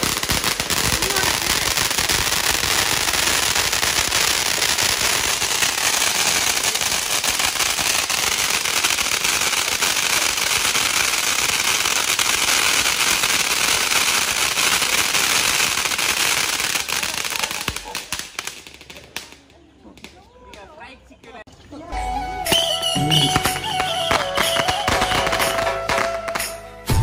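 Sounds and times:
hiss of sparks: 0:00.0 - 0:19.3
firecrackers crackling: 0:00.0 - 0:20.7, 0:22.5 - 0:27.0.

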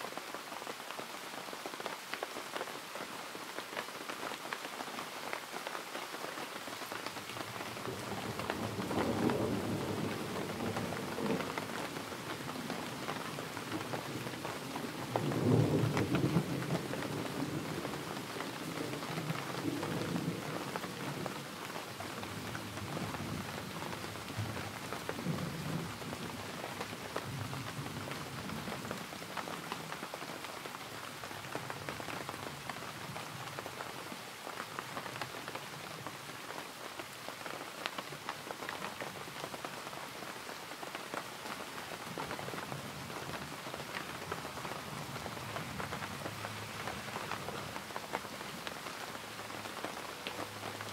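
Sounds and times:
steady rain falling: 0:00.0 - 0:50.9.

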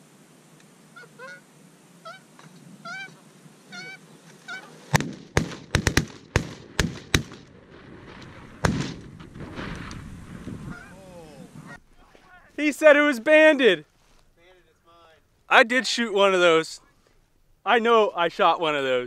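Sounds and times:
geese honking: 0:00.9 - 0:05.0, 0:10.6 - 0:12.4
shotgun blasts: 0:04.9 - 0:10.1.

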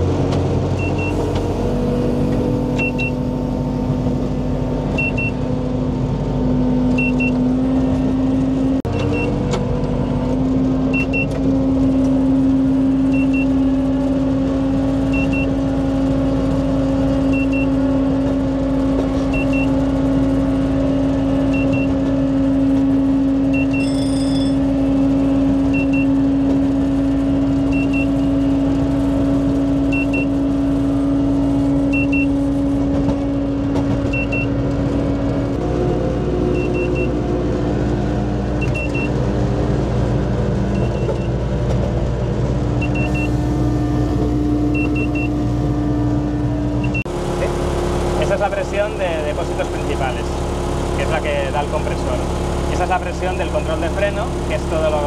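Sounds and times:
short double beep: 0:02.8 - 0:03.2, 0:23.6 - 0:24.6, 0:42.8 - 0:43.4.

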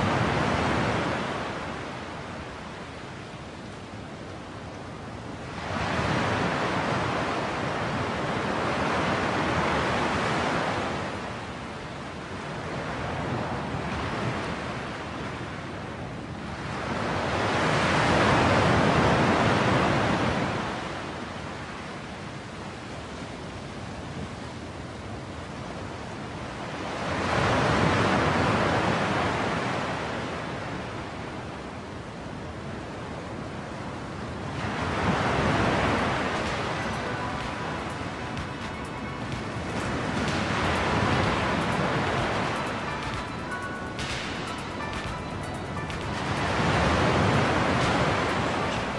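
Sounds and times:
ocean waves washing: 0:00.0 - 0:21.8, 0:32.3 - 0:48.9.

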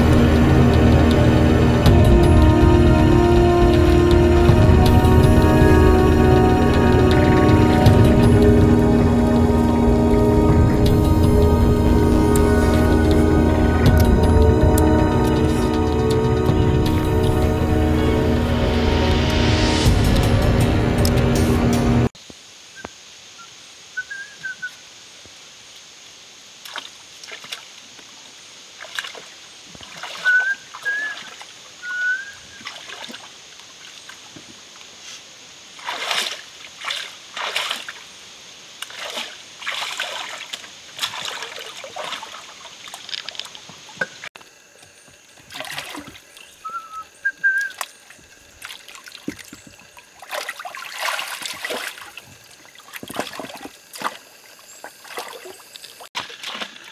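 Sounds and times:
high background hiss: 0:21.9 - 0:56.9
feet splashing through stream: 0:26.6 - 0:56.9.

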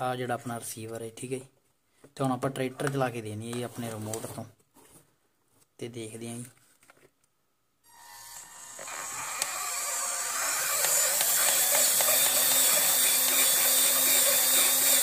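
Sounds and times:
electric motor whine: 0:07.9 - 0:15.0.

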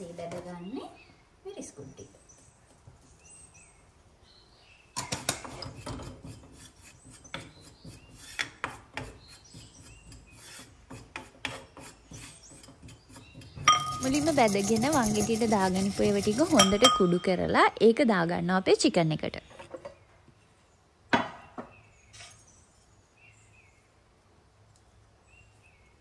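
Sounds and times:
pestle grinding seeds in mortar: 0:05.0 - 0:17.5.

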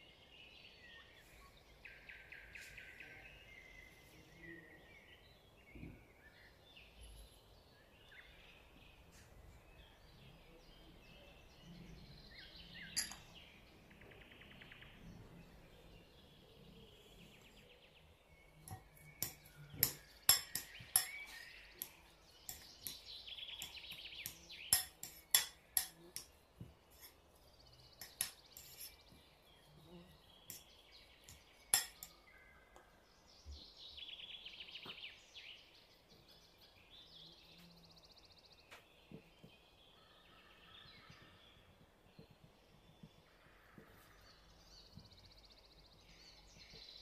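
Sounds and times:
birds chirping faintly: 0:00.0 - 0:47.0
clicks and taps on bowl: 0:18.6 - 0:27.1.

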